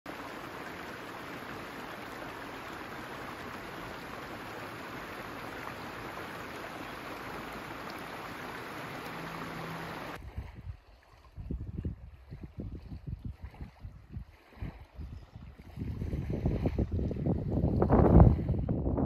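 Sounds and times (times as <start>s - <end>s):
stream running over stones: 0.1s - 10.2s.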